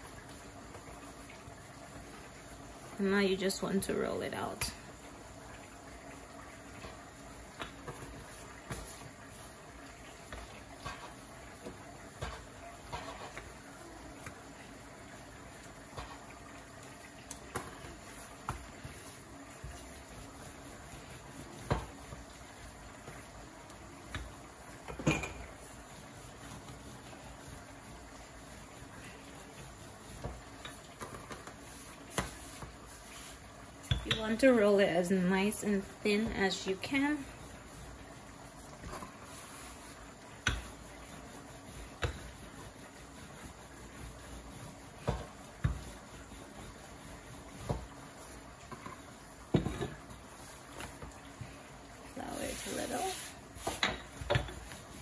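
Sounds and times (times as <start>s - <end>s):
rolling pin rolling dough: 5.5s - 55.0s.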